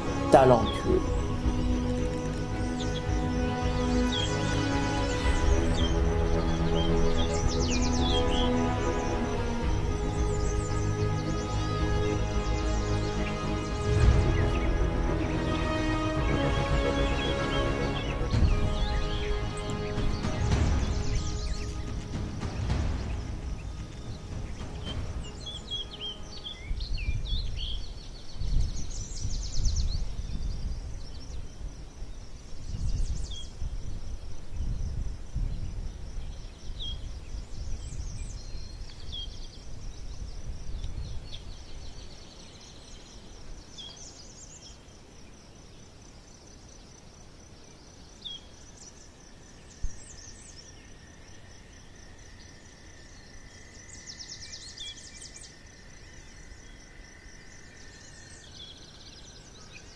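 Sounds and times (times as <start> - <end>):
high-pitched hiss: 0.0 - 59.9
small birds chirping: 0.0 - 59.9.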